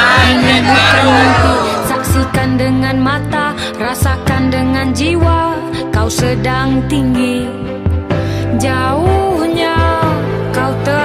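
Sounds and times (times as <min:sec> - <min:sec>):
pop song with singing: 0:00.0 - 0:11.0.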